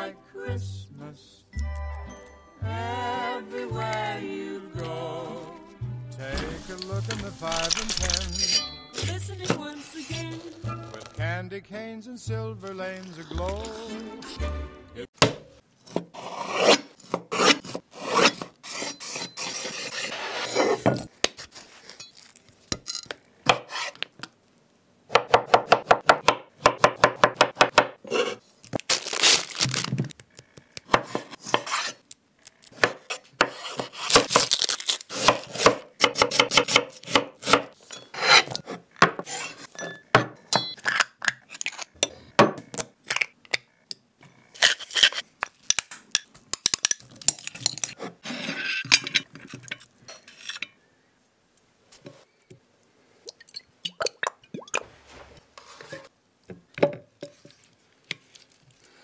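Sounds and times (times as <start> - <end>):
metal spoon clinking glass bowl: 6.6 - 9.2, 39.7 - 41.0
knife chopping on wooden board: 35.2 - 37.7.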